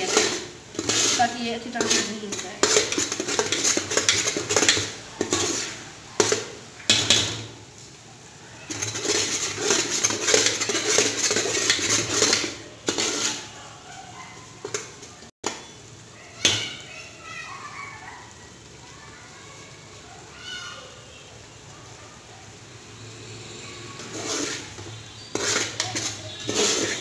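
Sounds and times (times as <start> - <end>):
spoon knocking pot: 0.0 - 5.6
metal spoon scraping a metal pot: 0.0 - 7.4, 8.7 - 13.6, 14.4 - 15.2, 23.7 - 27.0.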